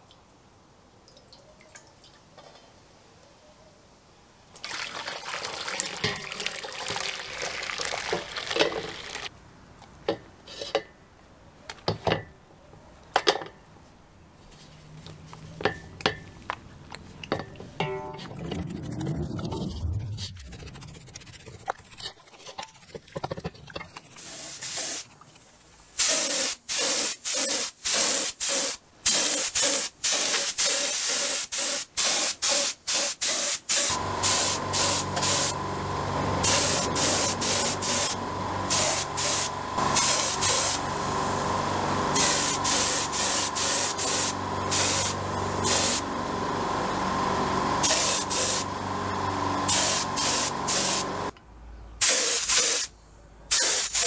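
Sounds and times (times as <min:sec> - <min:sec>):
spray paint hissing in bursts: 0:24.2 - 0:25.1, 0:26.0 - 0:35.6, 0:36.4 - 0:40.9, 0:42.2 - 0:46.0, 0:47.8 - 0:48.7, 0:49.7 - 0:51.1, 0:52.0 - 0:52.9, 0:53.5 - 0:54.0
steady motor hum: 0:33.9 - 0:51.3.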